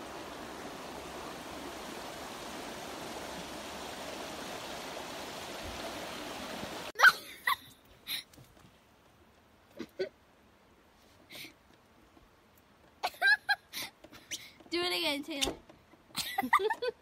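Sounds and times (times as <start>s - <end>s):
river rushing: 0.0s - 7.0s.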